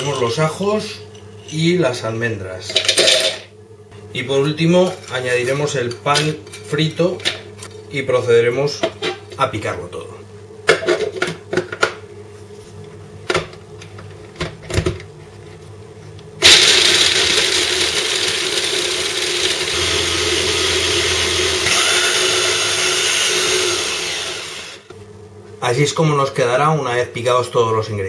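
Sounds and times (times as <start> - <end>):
electric chopper grinding: 16.4 - 24.9.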